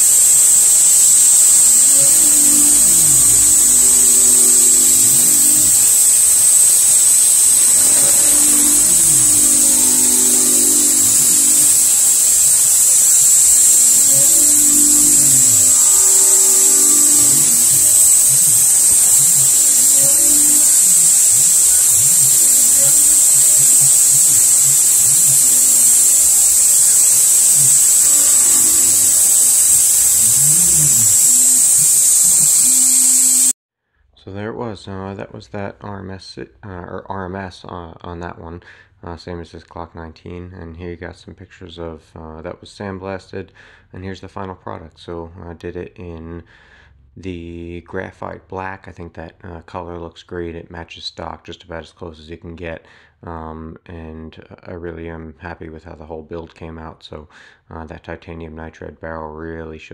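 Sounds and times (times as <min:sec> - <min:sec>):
axis motors rising and falling: 0:00.0 - 0:33.5
milling machine whine: 0:00.0 - 0:33.6.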